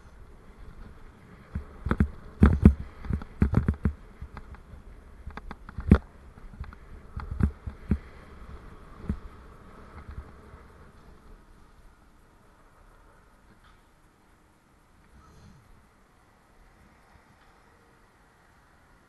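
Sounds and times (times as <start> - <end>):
bicycle knocking and rattling: 0.0 - 12.5
faint steady hiss: 0.0 - 19.0.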